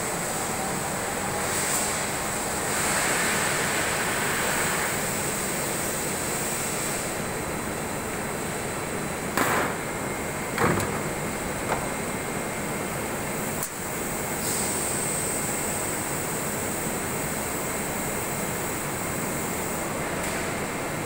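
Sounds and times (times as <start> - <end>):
machine noise with hiss: 0.0 - 21.0
sharp knocks: 10.6 - 12.0.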